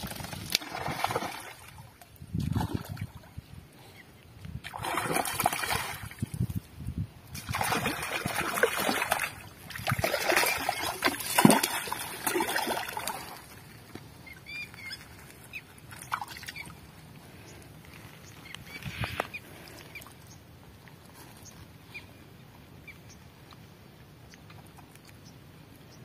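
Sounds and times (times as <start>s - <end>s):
water splashing and sloshing: 0.0s - 3.4s, 4.5s - 6.7s, 7.3s - 20.2s.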